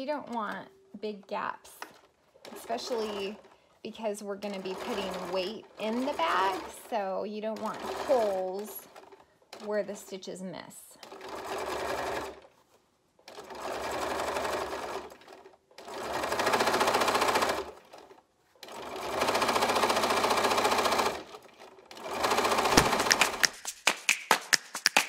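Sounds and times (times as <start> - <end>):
sewing machine stitching: 1.8 - 3.6, 4.5 - 9.8, 11.0 - 12.5, 13.2 - 23.6.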